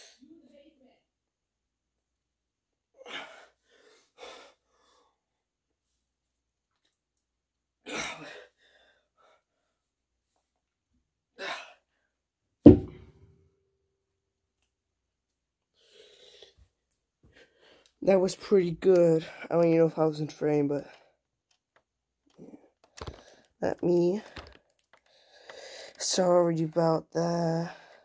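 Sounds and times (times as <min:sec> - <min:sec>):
dumbbells thudding on floor: 0:12.7 - 0:13.2.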